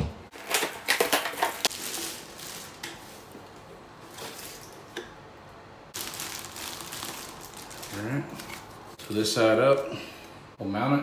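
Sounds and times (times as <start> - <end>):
plastic bag rustling and crinkling: 0.3 - 4.9, 5.9 - 9.4.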